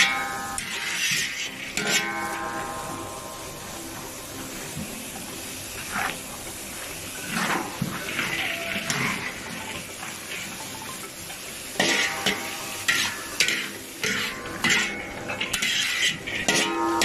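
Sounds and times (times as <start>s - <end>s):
metal spatula clanging on pan: 0.0s - 3.5s, 10.8s - 17.0s.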